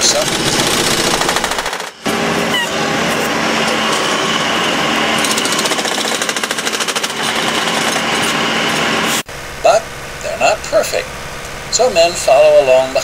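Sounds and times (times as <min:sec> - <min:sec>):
machine hammering spikes: 0:00.0 - 0:08.5.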